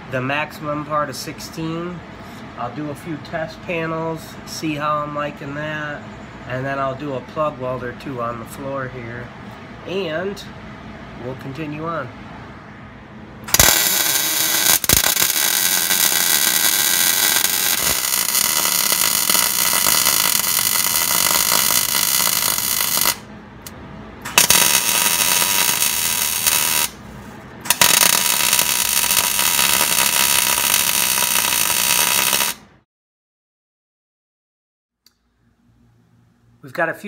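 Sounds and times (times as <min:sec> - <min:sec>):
welding arc crackling: 0:13.5 - 0:23.3, 0:24.3 - 0:27.0, 0:27.6 - 0:32.7.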